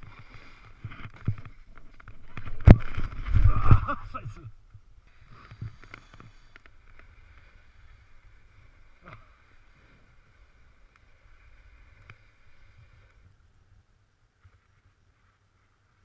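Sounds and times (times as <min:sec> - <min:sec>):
snowboard sliding on snow: 0:00.0 - 0:04.3, 0:05.1 - 0:13.5.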